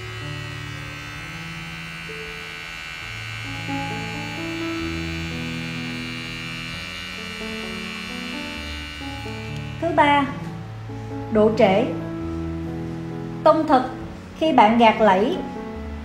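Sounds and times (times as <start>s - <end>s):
hair clipper motor buzzing: 0.0s - 10.6s
background music: 0.0s - 16.0s.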